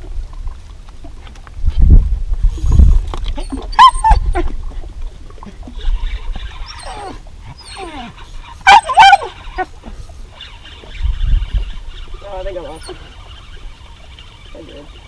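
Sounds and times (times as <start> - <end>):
dog whining: 3.4 - 4.6, 5.8 - 10.1, 12.6 - 13.1.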